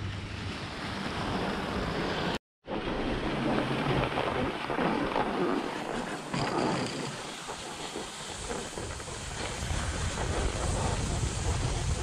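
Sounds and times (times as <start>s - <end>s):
wind on microphone: 0.0s - 12.0s
skis scraping over snow: 3.4s - 12.0s.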